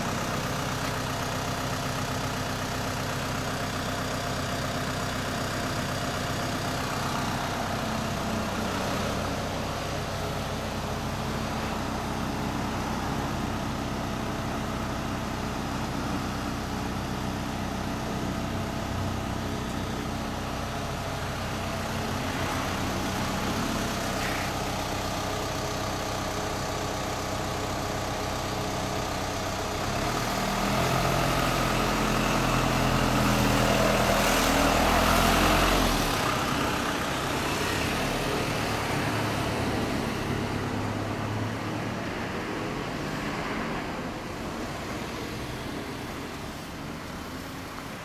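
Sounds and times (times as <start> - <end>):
motorcycle engine idling: 0.0 - 33.2
deeper engine revving: 27.9 - 47.1.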